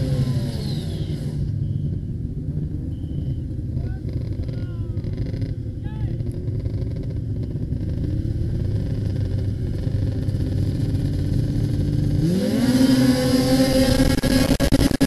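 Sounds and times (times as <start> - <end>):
snowmobile engine revving: 0.0 - 15.0.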